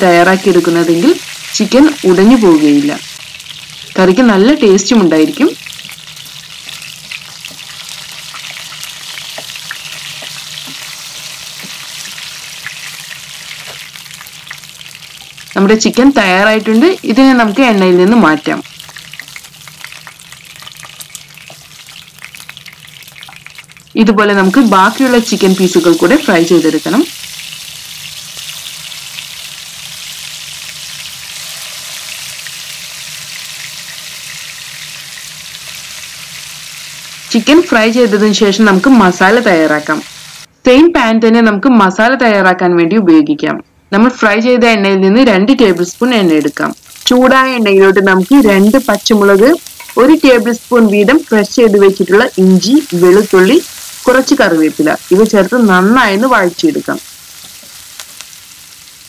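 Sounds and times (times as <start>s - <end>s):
chicken sizzling in a pan: 0.0s - 40.5s, 45.6s - 59.0s
spatula tapping and scraping: 9.2s - 10.9s.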